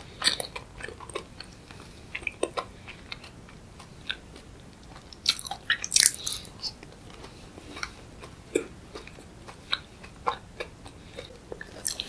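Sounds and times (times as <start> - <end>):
soft chewing clicks: 0.0 - 12.0
crisp biting sounds: 0.2 - 12.0.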